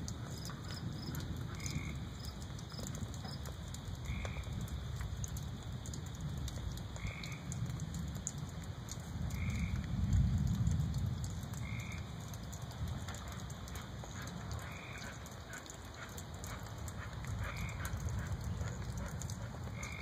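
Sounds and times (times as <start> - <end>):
distant thunder rumbling: 0.0 - 3.3, 9.3 - 20.0
frog calling: 0.3 - 3.4, 4.0 - 4.5, 7.0 - 7.5, 9.3 - 9.8, 11.6 - 12.2, 13.7 - 20.0.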